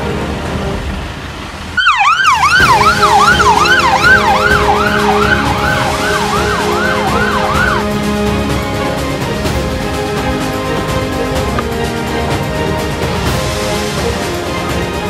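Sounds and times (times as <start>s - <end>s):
background music: 0.0s - 15.0s
fire engine siren yelping: 1.8s - 8.2s.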